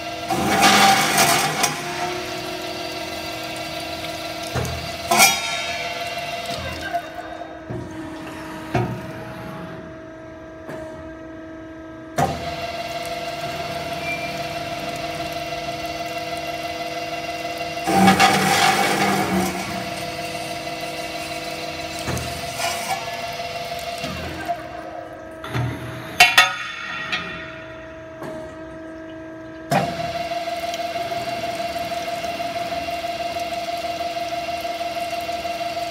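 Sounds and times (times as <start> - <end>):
cold saw cutting steel tube: 17.8 - 20.6.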